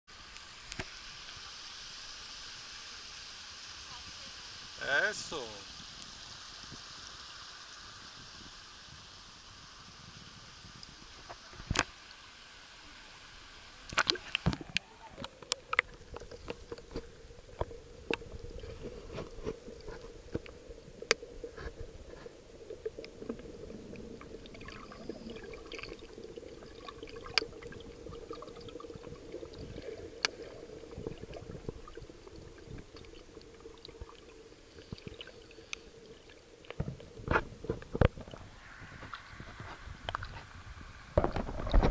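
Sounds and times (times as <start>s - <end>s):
water splashes: 9.9s - 41.9s
sharp underwater clicks: 13.9s - 18.3s, 27.0s - 27.5s.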